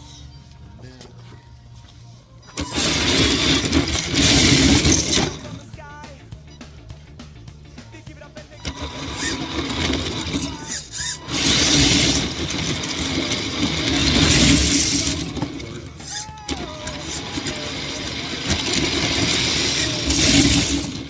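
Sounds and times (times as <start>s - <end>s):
toy truck motor surging: 2.5s - 5.7s, 8.5s - 21.0s
tyres sliding on smooth floor: 9.0s - 21.0s.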